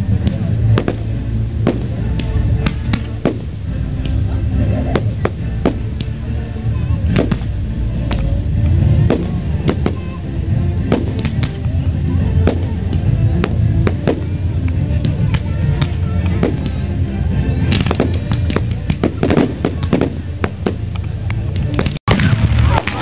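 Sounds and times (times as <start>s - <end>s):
continuous low rumble: 0.0s - 23.0s
fireworks bursting: 0.0s - 23.0s.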